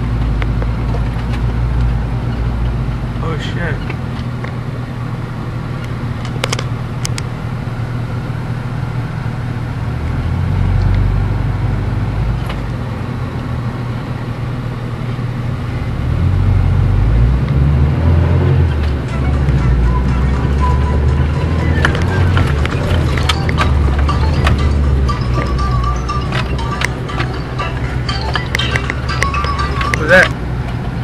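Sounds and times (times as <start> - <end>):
vehicle engine rumbling: 0.0 - 31.0.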